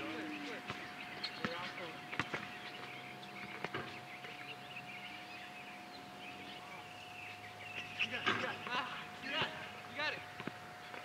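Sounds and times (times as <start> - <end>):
basketball bouncing: 0.6 - 2.5.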